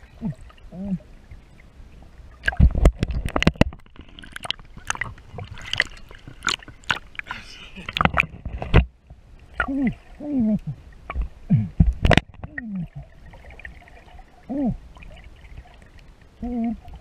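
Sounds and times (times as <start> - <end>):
muffled hoot-like calls underwater: 14.4 - 14.9, 16.4 - 17.0.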